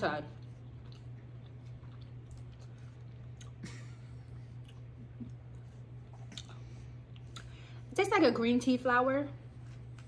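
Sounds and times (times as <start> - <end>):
steady low hum: 0.0 - 10.0
wet mouth chewing clicks: 6.0 - 7.5.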